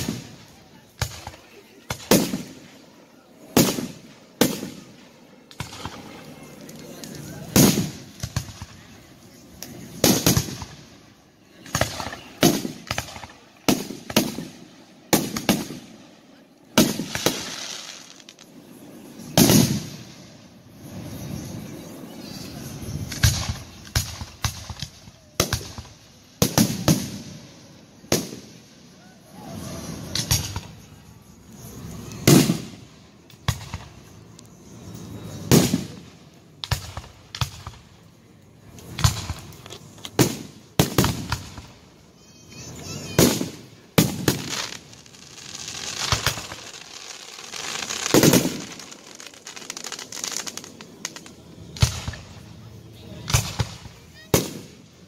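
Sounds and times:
fireworks bursting: 0.0 - 55.0.

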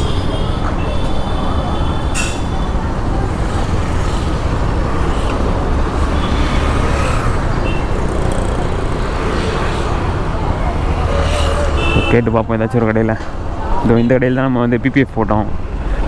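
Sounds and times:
road and traffic noise: 0.0 - 16.0
motorcycle engine drone: 2.8 - 11.0.

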